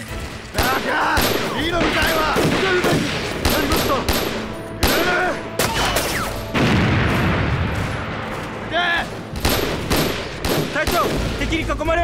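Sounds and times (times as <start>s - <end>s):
gunshots: 0.5s - 11.8s
explosion with heavy rumble: 6.6s - 8.3s.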